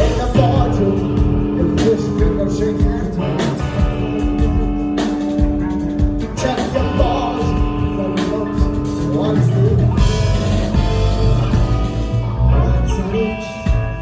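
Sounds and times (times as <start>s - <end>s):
electric guitars sustaining notes: 0.0s - 14.0s
live rock band playing: 0.0s - 14.0s.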